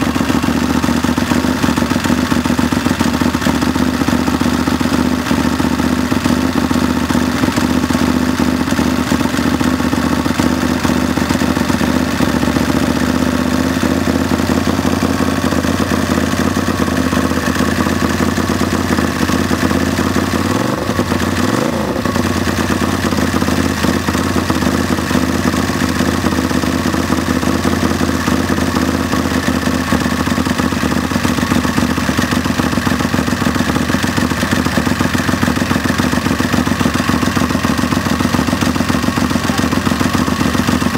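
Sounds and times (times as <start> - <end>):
lawnmower engine running: 0.0 - 40.9.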